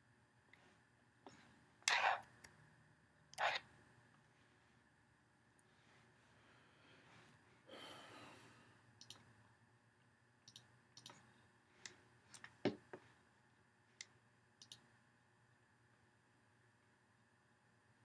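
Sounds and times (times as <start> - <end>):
computer mouse clicks: 1.9 - 2.6, 3.3 - 3.7, 9.0 - 9.3, 10.5 - 11.2, 14.6 - 14.9
faint breath out: 5.8 - 8.8.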